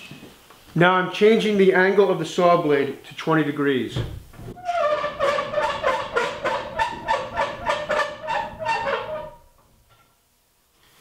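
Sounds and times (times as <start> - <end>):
table saw mechanism squeaking: 4.6 - 10.1.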